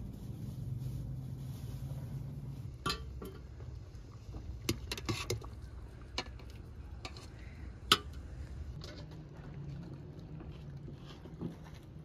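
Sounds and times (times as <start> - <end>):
low steady rumble: 0.0 - 12.0
metal skimmer clinking on pot: 2.8 - 3.5.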